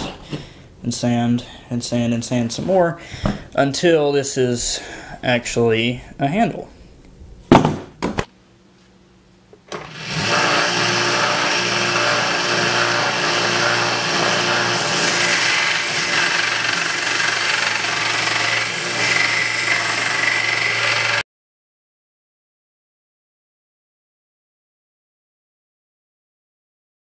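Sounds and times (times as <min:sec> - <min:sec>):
belt sander sanding wood: 0:09.8 - 0:21.2.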